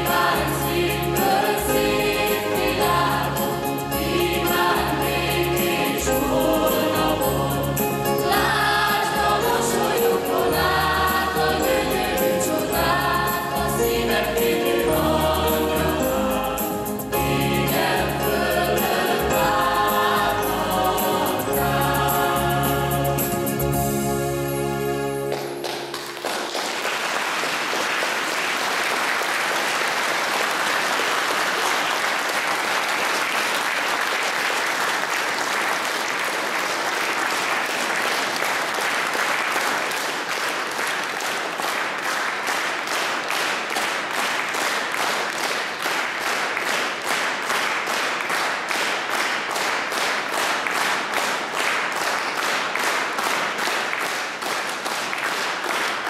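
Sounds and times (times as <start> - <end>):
audience applauding: 25.2 - 56.0.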